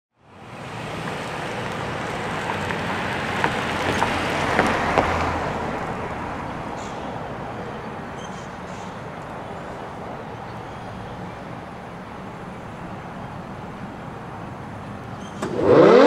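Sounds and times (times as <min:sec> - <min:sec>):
outdoor rushing noise: 0:13.7 - 0:16.0.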